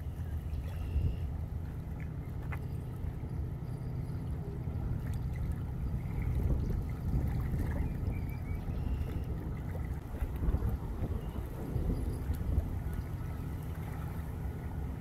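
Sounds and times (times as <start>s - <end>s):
faint water sounds: 0.0s - 15.0s
wind buffeting microphone: 4.4s - 15.0s.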